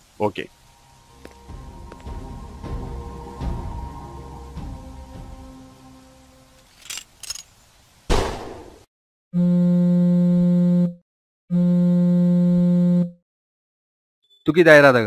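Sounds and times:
loud hit: 8.1 - 8.8.

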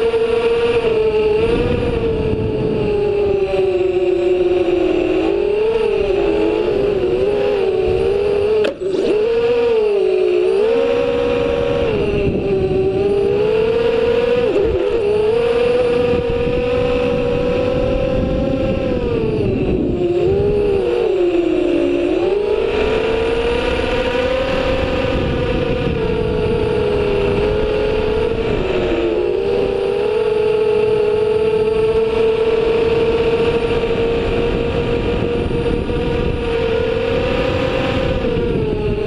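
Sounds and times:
drone motors whining: 0.0 - 39.0.

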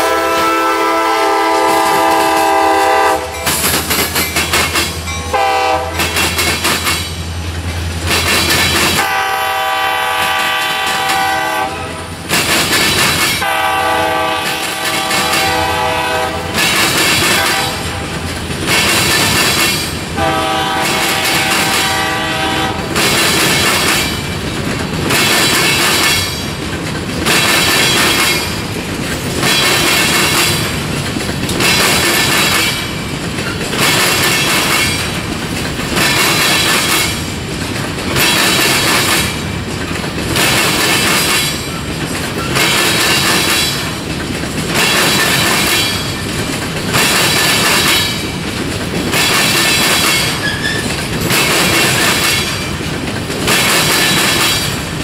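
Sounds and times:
locomotive horn blasts: 0.0 - 3.5, 5.2 - 6.2, 9.0 - 12.0, 13.4 - 16.6, 17.3 - 18.1, 20.2 - 22.9
train wheels clattering over crossing: 0.0 - 55.0.

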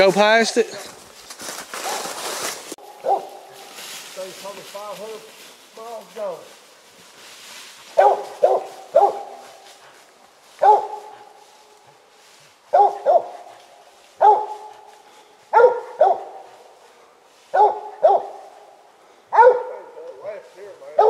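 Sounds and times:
dog barking: 2.8 - 3.6, 7.9 - 9.7, 10.6 - 11.4, 12.7 - 14.9, 15.5 - 16.6, 17.5 - 20.2.

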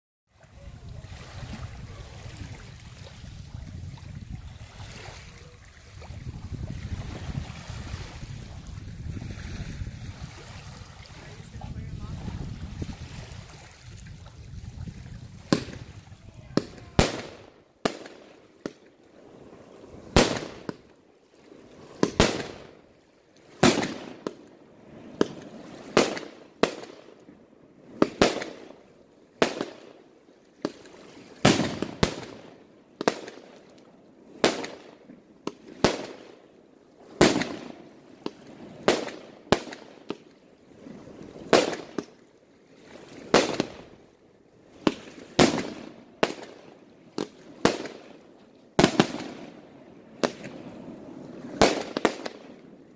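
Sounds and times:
fireworks bangs with echo: 15.5 - 18.8, 20.1 - 20.8, 22.0 - 22.8, 23.6 - 24.4, 25.1 - 27.1, 28.0 - 28.7, 29.4 - 30.0, 31.4 - 33.5, 34.4 - 36.4, 37.2 - 40.2, 41.5 - 42.1, 43.3 - 43.9, 44.8 - 46.6, 47.2 - 48.0, 48.8 - 49.6, 50.2 - 50.6, 51.6 - 52.5.

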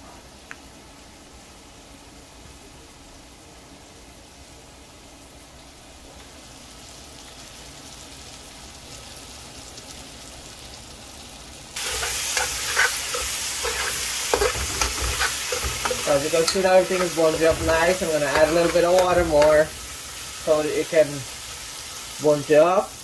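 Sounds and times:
curry sizzling in a pan: 0.3 - 23.0
spatula scraping a pan: 11.8 - 20.2.

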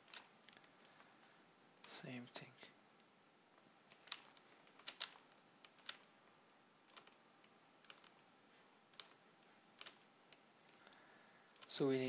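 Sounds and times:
low steady hiss: 0.0 - 12.0
keyboard and mouse clicks: 3.9 - 6.2, 6.9 - 8.3, 8.9 - 11.8.

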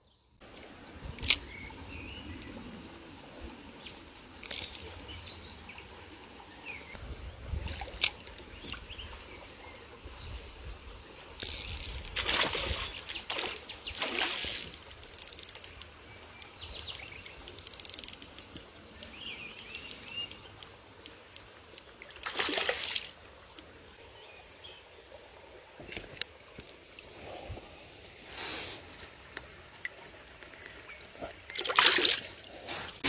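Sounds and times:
water splashes: 11.5 - 14.7, 21.9 - 23.4, 31.2 - 33.0
fishing reel clicking: 14.2 - 15.9, 16.8 - 19.1.

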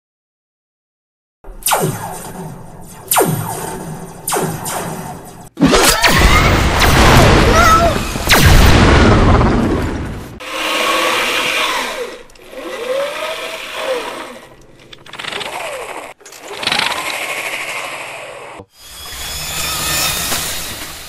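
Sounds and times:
mechanical robot whirring: 10.4 - 21.0.

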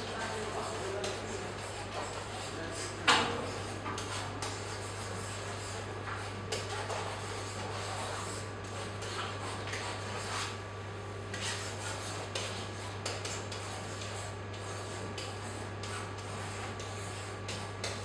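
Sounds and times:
pen scratching on screen: 11.3 - 18.0.

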